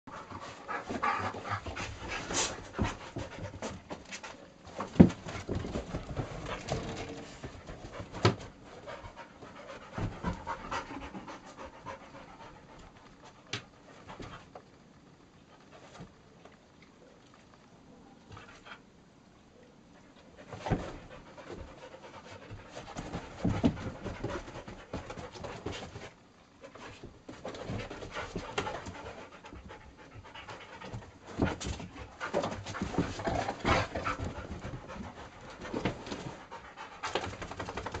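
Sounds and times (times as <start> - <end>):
dogs panting: 0.1 - 14.5, 20.2 - 38.0
thumps and scuffles: 0.9 - 8.6, 20.5 - 21.7.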